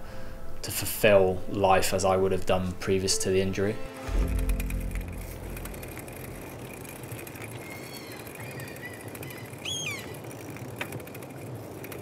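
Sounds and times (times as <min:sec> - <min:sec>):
bike tyres rolling on tarmac: 0:04.1 - 0:12.0
short whistling call: 0:07.6 - 0:10.2.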